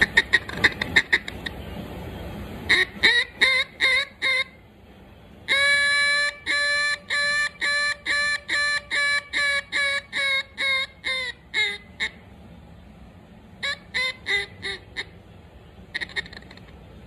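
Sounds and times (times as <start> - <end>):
duck call quacks: 0.0 - 1.6, 2.7 - 4.6, 5.5 - 12.2, 13.6 - 15.2, 15.9 - 16.8.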